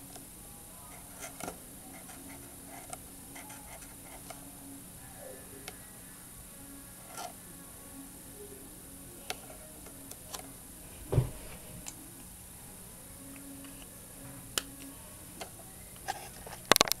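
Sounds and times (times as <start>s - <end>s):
dull thump: 11.0s - 11.5s
marker and paper clicks: 15.4s - 17.0s.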